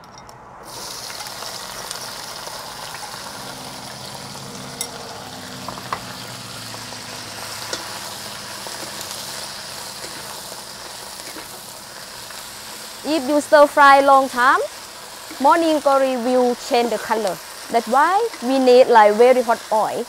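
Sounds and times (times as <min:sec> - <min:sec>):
vegetables sizzling in wok: 0:00.6 - 0:20.0
utensils clicking against wok: 0:07.6 - 0:08.0, 0:10.0 - 0:11.7, 0:18.1 - 0:18.7.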